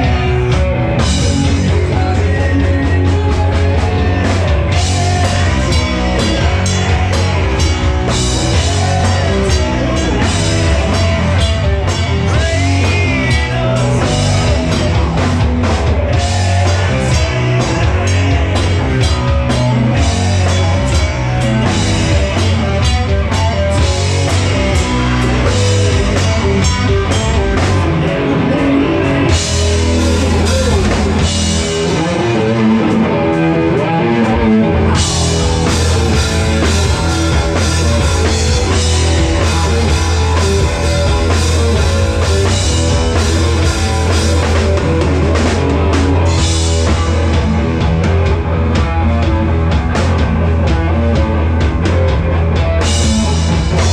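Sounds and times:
drum kit: 0.0 - 53.9
loud electric guitar: 0.0 - 53.9.

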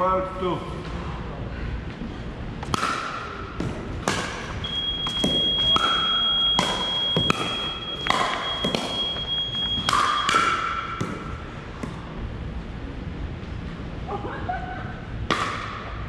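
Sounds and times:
ball bouncing: 2.6 - 12.0
steady high-pitched tone: 4.6 - 10.8.

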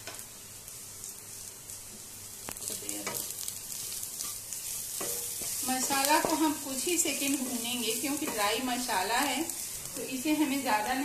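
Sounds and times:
food sizzling in oil: 0.0 - 11.0
spatula scraping a pan: 3.0 - 8.6
spatula tapping a pan: 4.2 - 8.7.

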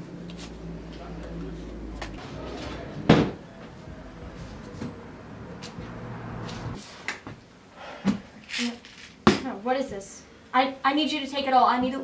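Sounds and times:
loud knock: 3.1 - 3.4.

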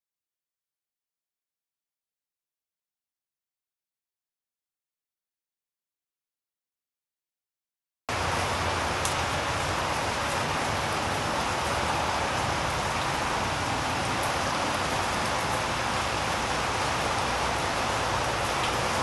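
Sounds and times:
rain on concrete: 8.1 - 19.0.

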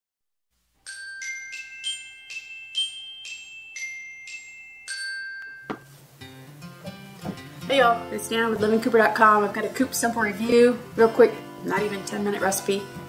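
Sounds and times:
glockenspiel-like jingle: 0.8 - 6.0.

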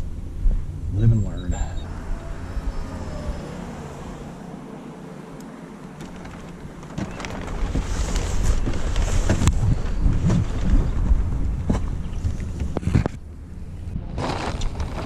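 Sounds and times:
wind buffeting microphone: 6.4 - 15.0.

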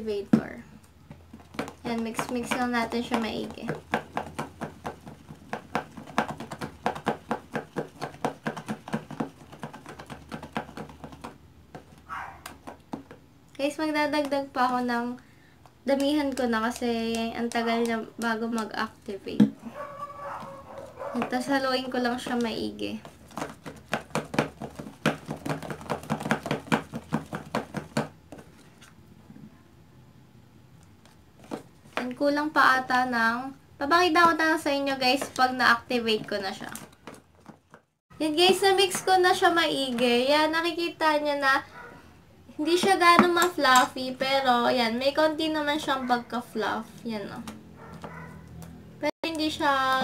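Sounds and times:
spoon stirring slime in bowl: 1.1 - 15.1, 15.8 - 29.0
spoon stirring slime clicking: 15.9 - 19.0.

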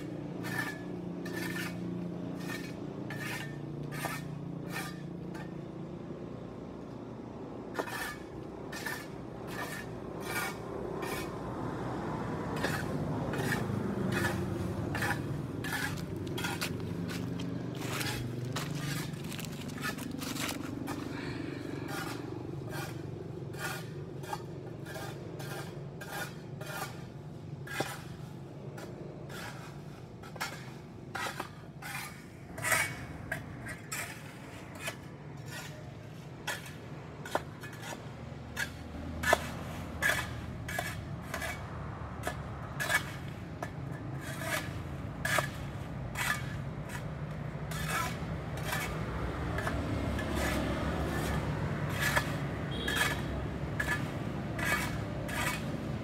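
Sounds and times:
hand tools scraping pavement: 0.0 - 5.8, 7.6 - 56.0.

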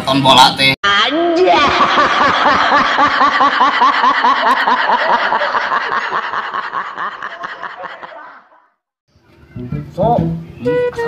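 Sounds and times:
man laughing hard: 1.5 - 8.7.

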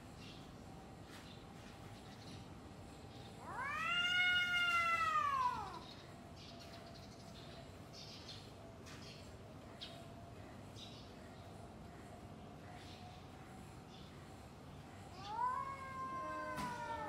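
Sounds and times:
cat yowling: 3.4 - 5.9, 15.1 - 17.0.

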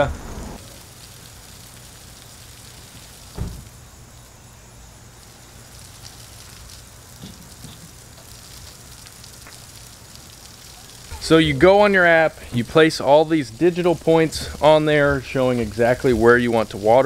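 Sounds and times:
sprinkler spraying water: 0.0 - 17.0
thump: 3.3 - 3.7.

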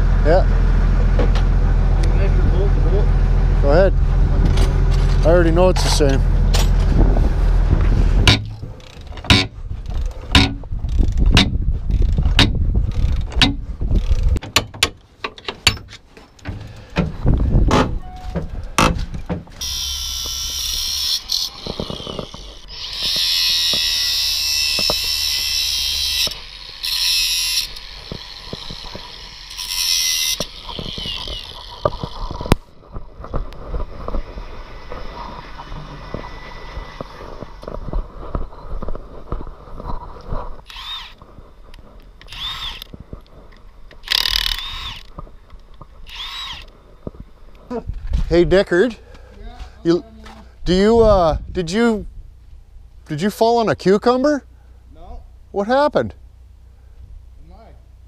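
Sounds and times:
metal knocks and clanks: 7.8 - 9.6, 10.3 - 11.6, 12.2 - 12.6, 13.2 - 13.6
angle grinder cutting steel: 19.6 - 32.5, 34.7 - 37.6, 40.7 - 41.2, 46.1 - 46.7.

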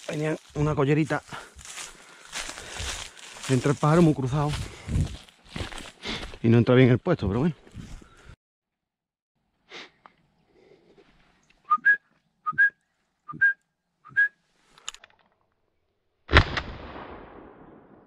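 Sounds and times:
short rising whistles: 11.7 - 14.4
shotgun shot: 16.3 - 18.0.

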